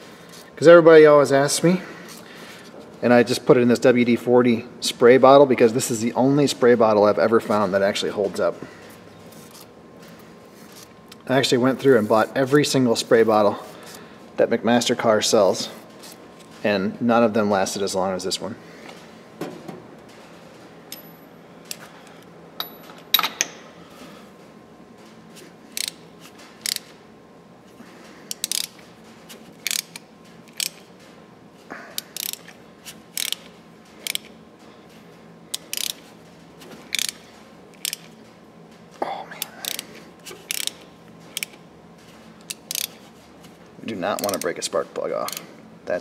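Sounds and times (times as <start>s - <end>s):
ratchet wrench clicking: 25.7s - 26.0s, 26.6s - 26.9s, 28.3s - 28.8s, 29.6s - 30.9s, 32.0s - 34.4s, 35.5s - 36.1s, 36.9s - 38.1s, 39.4s - 39.8s, 40.4s - 41.6s, 42.4s - 43.0s, 44.1s - 44.6s.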